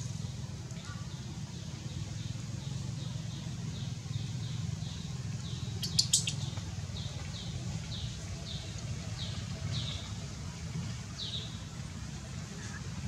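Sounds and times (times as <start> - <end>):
bird chirping: 3.7 - 6.6.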